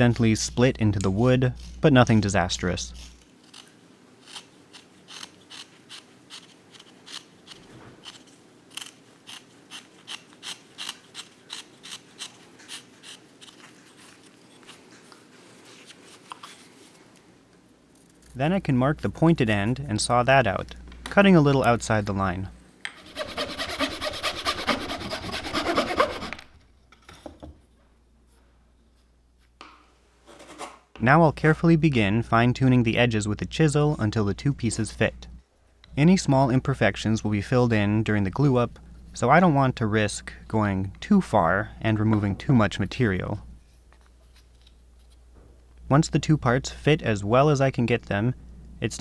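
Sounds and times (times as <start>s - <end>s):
handsaw cutting wood: 23.0s - 26.5s.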